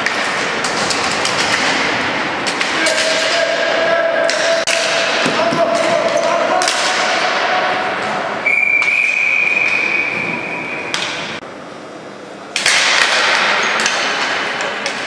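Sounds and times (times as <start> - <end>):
hockey sticks knocking ball: 0.0 - 7.4, 8.0 - 11.4, 12.5 - 15.0
long whistle blast: 8.4 - 10.8.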